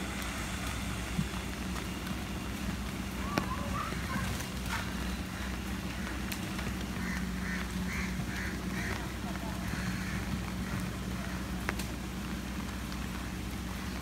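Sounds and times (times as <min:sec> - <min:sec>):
low hum: 0:00.0 - 0:14.0
pelicans flapping: 0:00.0 - 0:14.0
pelican calls: 0:06.8 - 0:11.6.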